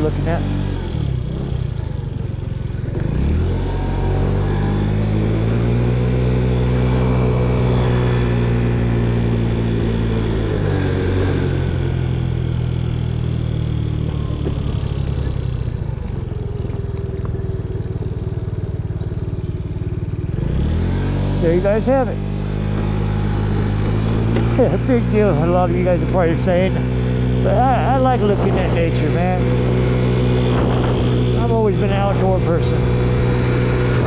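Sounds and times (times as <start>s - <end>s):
scooter engine running: 0.0s - 34.0s.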